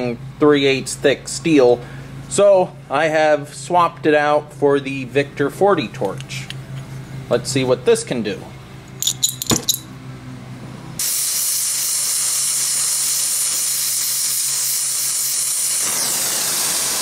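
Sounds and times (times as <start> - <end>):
torch flame hissing: 11.0 - 17.0.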